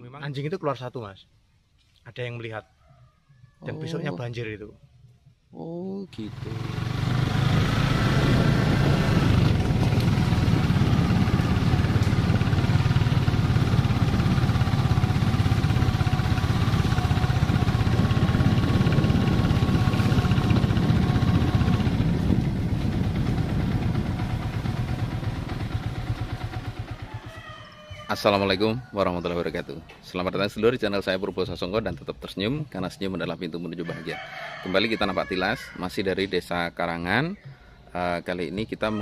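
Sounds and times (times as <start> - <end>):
loud low rumble: 6.3 - 26.8.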